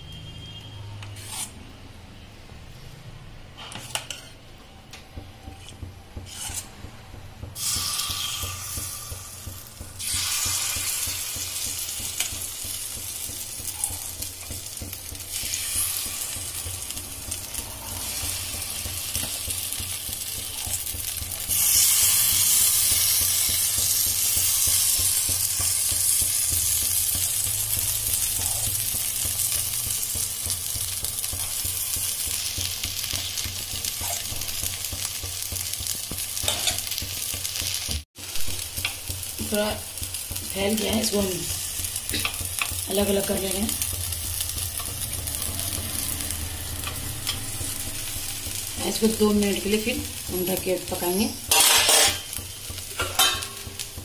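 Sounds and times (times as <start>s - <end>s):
batter sizzling in hot oil: 5.6s - 54.0s.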